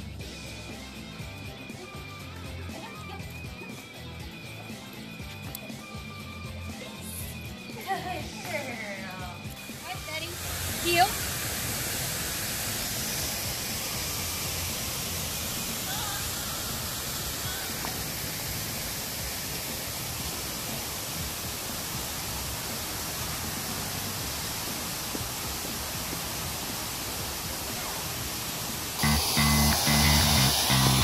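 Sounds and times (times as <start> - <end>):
steady rushing noise: 9.8 - 31.0.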